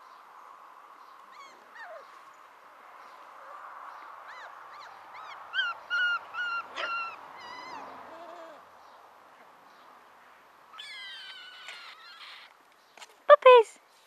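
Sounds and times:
puppies yipping: 0:01.3 - 0:02.2, 0:04.3 - 0:08.6, 0:10.8 - 0:12.5
puppy whining: 0:01.3 - 0:02.2, 0:04.3 - 0:08.6, 0:10.8 - 0:12.6.

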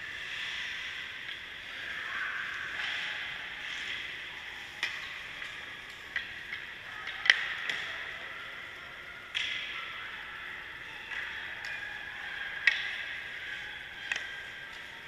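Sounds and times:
hockey gear clacking: 0:11.1 - 0:15.0.

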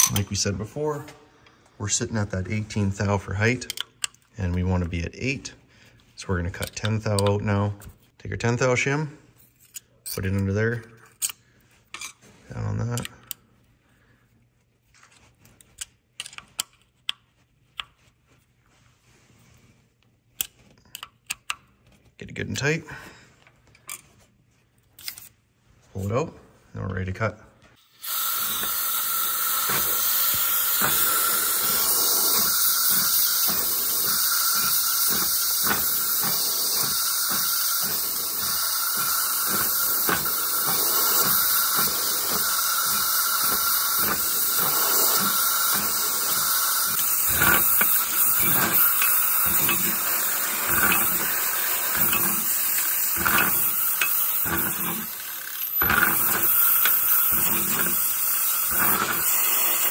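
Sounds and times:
cutter machine hissing: 0:27.8 - 0:59.9.

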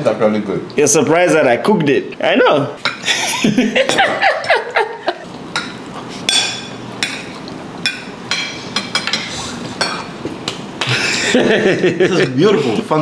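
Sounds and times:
forks clinking on plates: 0:05.5 - 0:10.2.

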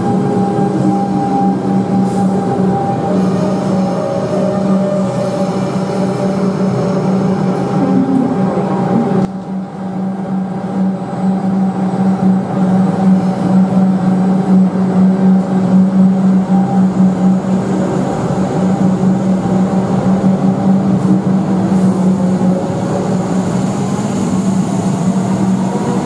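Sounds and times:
train motor whine rising: 0:00.0 - 0:09.6
standing train hum: 0:00.0 - 0:26.0.

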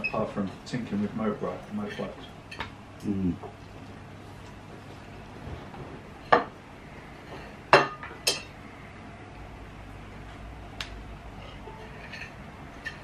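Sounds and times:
cutlery clinking on ceramic plates: 0:07.8 - 0:08.5, 0:11.4 - 0:13.0.

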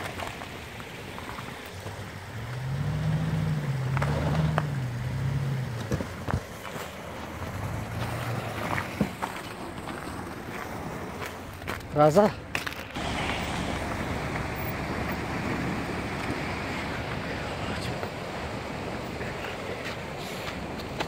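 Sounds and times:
car engine revving: 0:01.7 - 0:10.3, 0:13.0 - 0:20.6.

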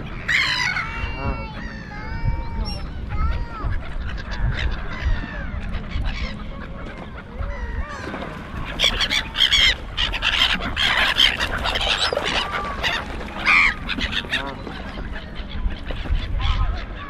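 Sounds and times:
large birds honking: 0:00.0 - 0:02.0, 0:03.7 - 0:17.0.

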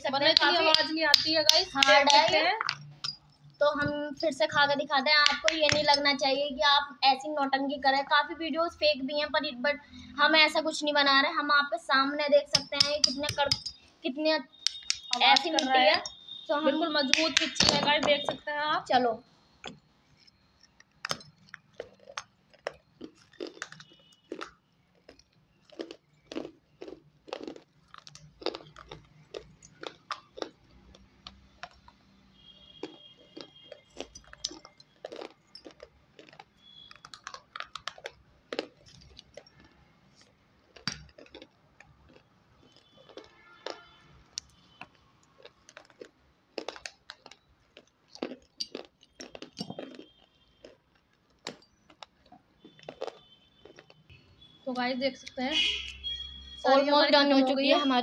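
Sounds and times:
clay shards crunching and cracking: 0:12.5 - 0:13.8, 0:14.6 - 0:16.2, 0:19.6 - 0:32.0, 0:32.8 - 0:43.8, 0:44.4 - 0:54.0.

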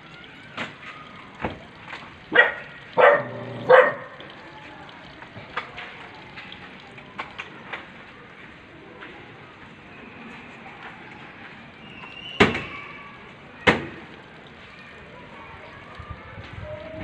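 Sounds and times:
dog barking: 0:02.3 - 0:04.2.

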